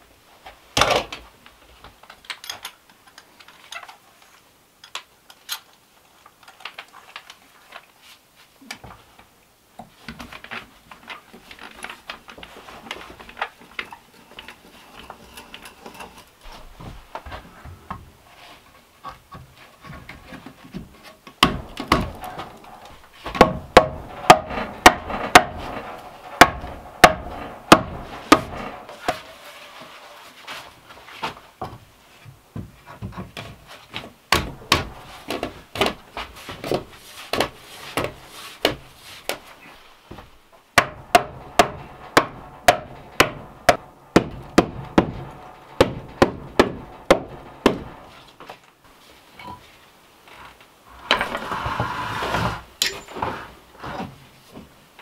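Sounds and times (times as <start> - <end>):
hammering on wood: 21.4 - 29.2, 34.3 - 39.4, 40.1 - 48.2.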